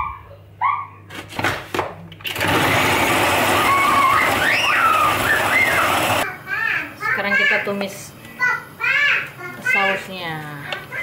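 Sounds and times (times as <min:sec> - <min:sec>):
food processor running: 0:02.2 - 0:06.2.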